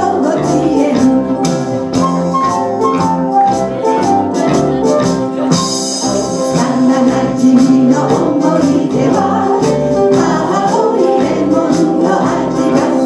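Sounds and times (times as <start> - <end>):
woman singing: 0.0 - 1.5, 6.0 - 13.0
live band playing: 0.0 - 13.0
percussion beat: 0.0 - 13.0.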